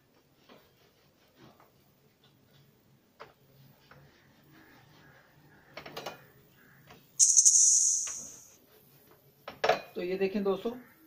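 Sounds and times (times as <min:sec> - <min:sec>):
loud hiss: 0:07.2 - 0:08.5.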